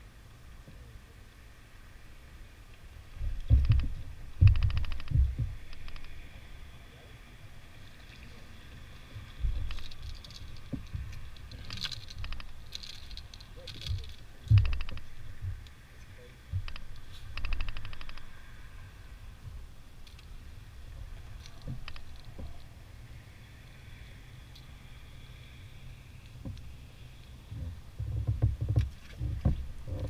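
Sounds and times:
low thumps and rumble: 3.2 - 6.1, 9.2 - 12.8, 13.8 - 15.8, 16.5 - 18.4, 27.4 - 30.0
rapid even clicking: 3.4 - 6.2, 9.6 - 15.7, 16.5 - 18.3.

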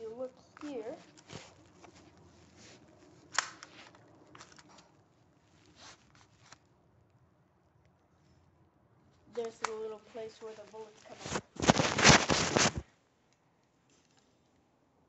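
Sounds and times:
pistol clicks: 3.3 - 3.7.

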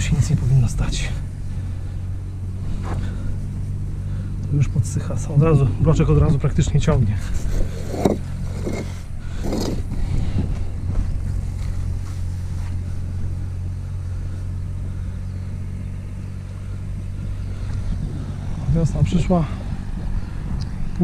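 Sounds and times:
tractor engine droning: 0.0 - 21.0
concrete block scraping and knocking: 6.9 - 10.1.

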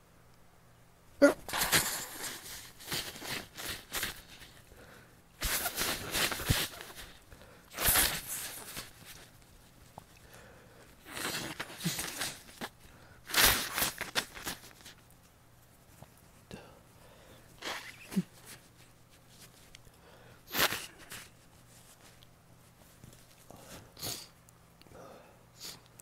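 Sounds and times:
person sneezing: 1.2 - 4.4, 7.7 - 8.9, 11.1 - 12.7, 13.3 - 14.7, 17.6 - 18.7, 20.5 - 21.3.

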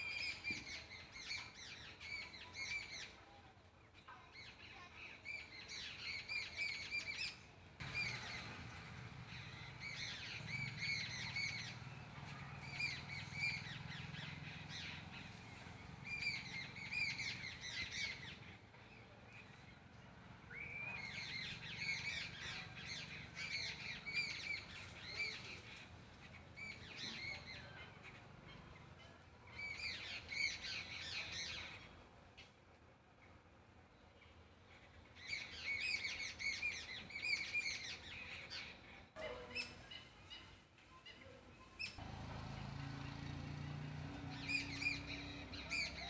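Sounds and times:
birds calling: 5.3 - 32.0, 34.2 - 46.0.

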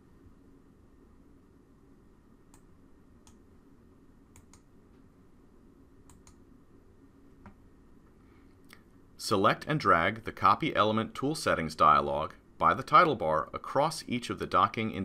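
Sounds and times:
low room noise: 0.0 - 15.0
computer mouse clicks: 2.5 - 3.4, 4.3 - 4.7, 6.0 - 6.4.

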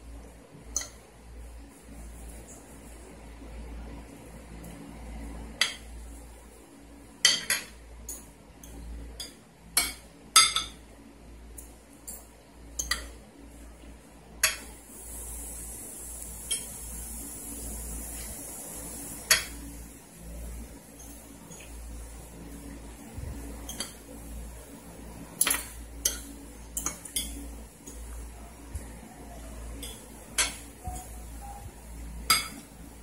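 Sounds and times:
steady high hiss: 12.9 - 33.0
plates and utensils clinking: 29.8 - 32.7.

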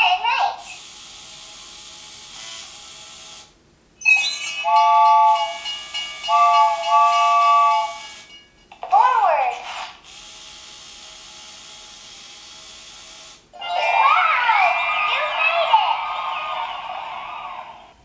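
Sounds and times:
train whistle: 4.7 - 8.3.

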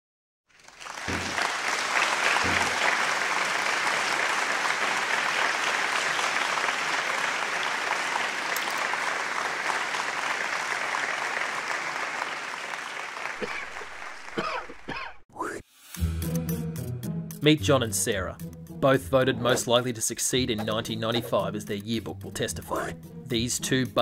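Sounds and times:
audience applauding: 0.5 - 15.2.

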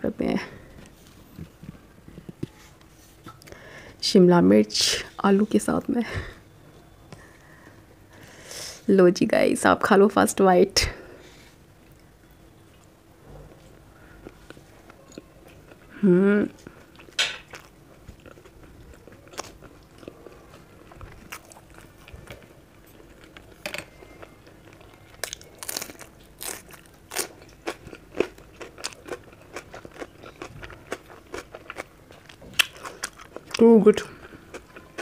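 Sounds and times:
person chewing food: 14.1 - 35.0.

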